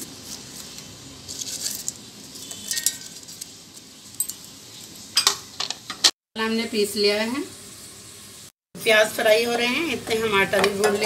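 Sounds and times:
spices rustling in steel jar: 0.0 - 5.0.

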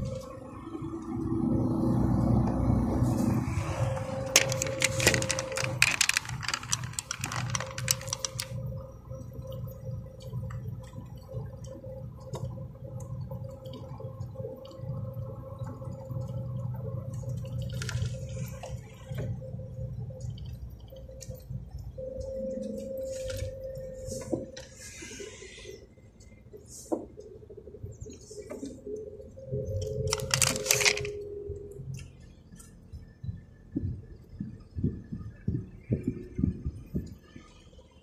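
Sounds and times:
diesel truck engine hum: 0.0 - 38.0
crackling and rattling: 4.2 - 8.8, 29.8 - 31.2.

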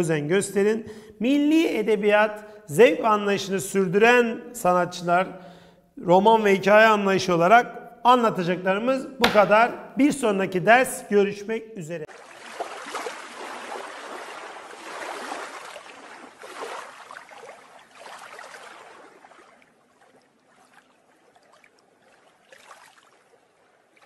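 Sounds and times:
water flowing and splashing: 12.0 - 24.0.

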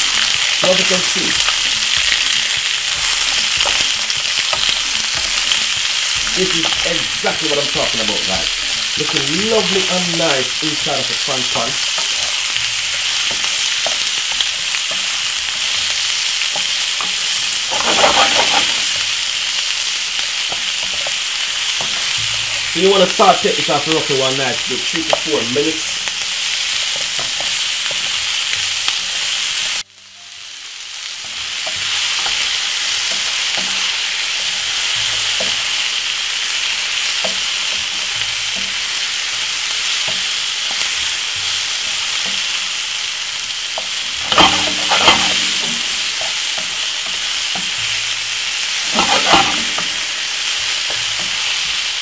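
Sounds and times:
vegetables sizzling in a frying pan: 0.0 - 52.0
wooden spoon scraping a pan: 11.8 - 19.2, 43.8 - 47.8, 48.7 - 51.8.

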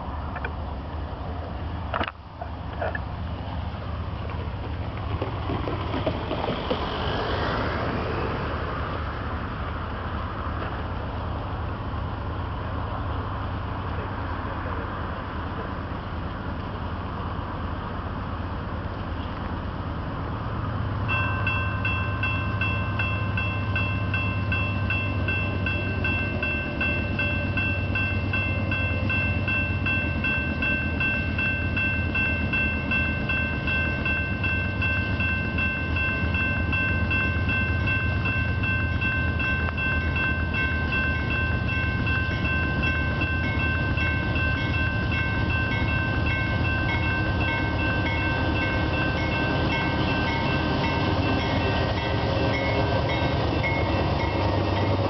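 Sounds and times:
freight train rumble: 0.0 - 55.0
railroad crossing bell ringing: 21.0 - 55.0.

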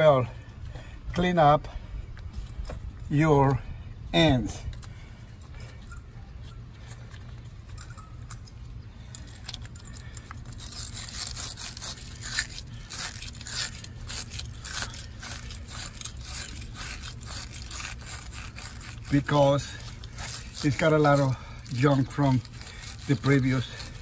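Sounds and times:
brush scrubbing metal clamp: 7.7 - 24.0.

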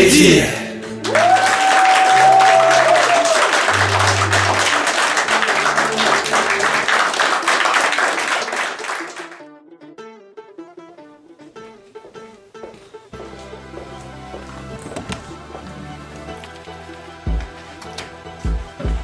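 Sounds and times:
men applauding: 0.8 - 9.4
music with bass line: 3.7 - 6.8, 13.1 - 19.0.

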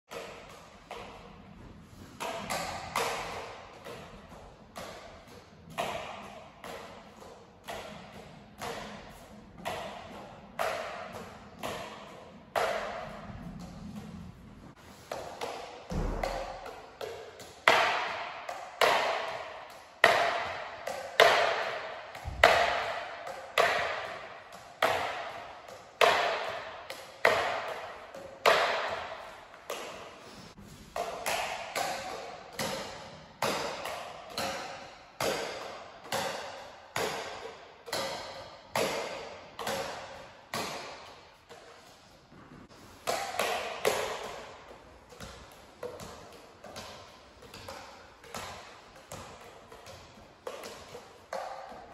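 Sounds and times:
juggling clubs knocking together: 2.1 - 14.1, 15.0 - 42.0, 42.9 - 51.9.

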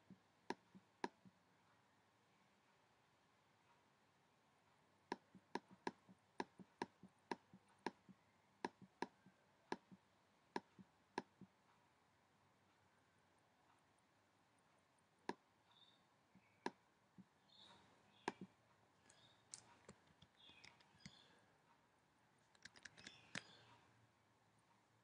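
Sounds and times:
mouse clicks: 0.0 - 1.3, 5.1 - 10.0, 10.6 - 11.5, 15.3 - 18.5, 19.1 - 21.3, 22.5 - 23.8
keyboard typing: 5.1 - 10.0, 22.6 - 23.6.

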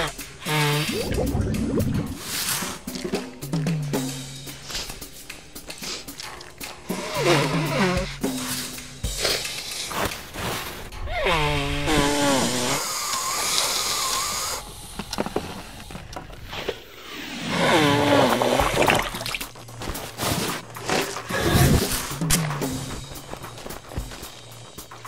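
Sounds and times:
person blowing nose: 0.0 - 2.8, 4.6 - 10.6, 11.3 - 14.7, 17.4 - 24.7.

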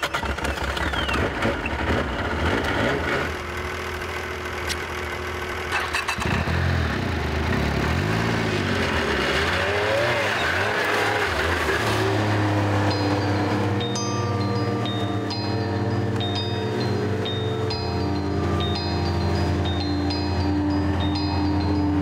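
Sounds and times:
snowmobile engine revving: 0.0 - 22.0.

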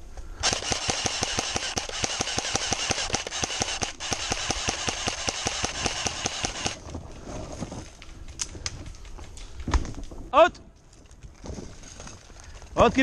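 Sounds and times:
airsoft gun full-auto burst: 0.4 - 6.8.

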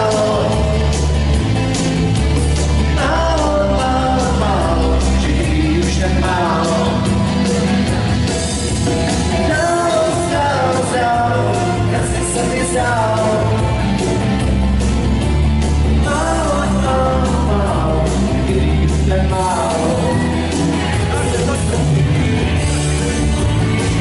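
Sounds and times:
person singing: 0.0 - 1.6, 2.6 - 8.0, 9.3 - 14.2, 16.0 - 22.2
dance band playing: 0.0 - 24.0.

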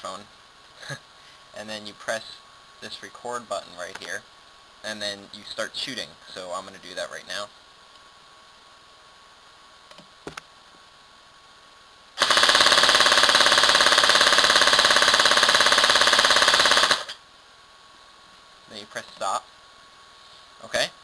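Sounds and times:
airsoft gun full-auto burst: 12.2 - 17.2.

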